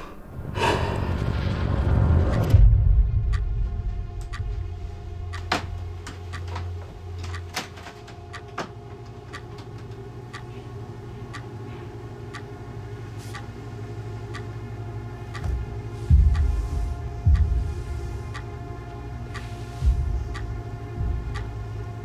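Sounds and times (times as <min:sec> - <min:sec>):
low hum with held tones: 0:02.1 - 0:22.0
sharp ticks and clicks: 0:05.3 - 0:08.5.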